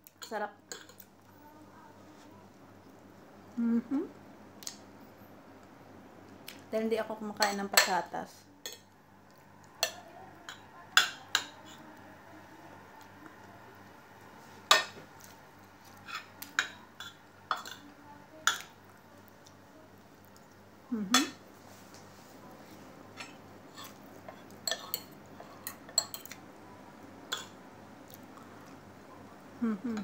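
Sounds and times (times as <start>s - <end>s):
cutlery clinking on ceramic plates: 23.2s - 26.4s.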